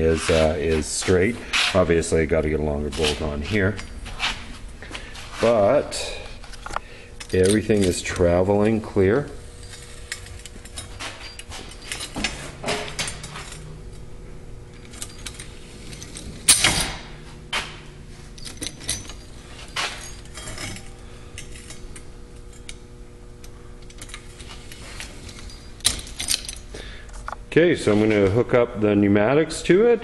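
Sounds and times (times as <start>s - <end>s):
metal bars clinking and knocking: 6.5s - 9.0s, 9.6s - 13.8s, 14.7s - 22.8s, 23.8s - 26.7s.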